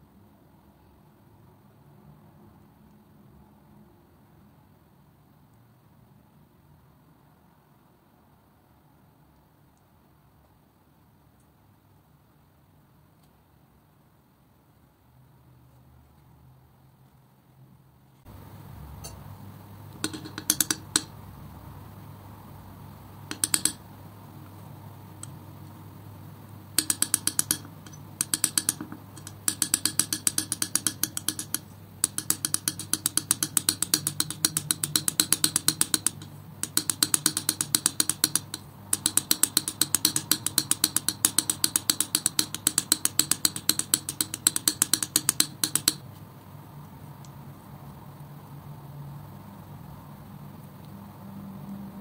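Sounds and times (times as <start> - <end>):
palette knife mixing paint clicks: 18.3 - 21.2, 21.9 - 25.8, 26.7 - 46.2.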